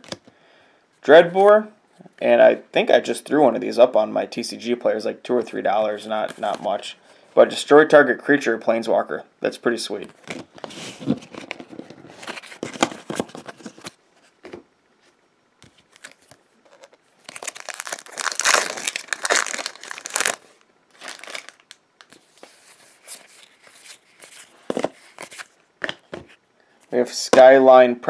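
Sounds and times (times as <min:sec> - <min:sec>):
cards rustling: 0:10.0 - 0:14.0, 0:15.6 - 0:26.0
foil wrapper crinkling and tearing: 0:16.0 - 0:22.4.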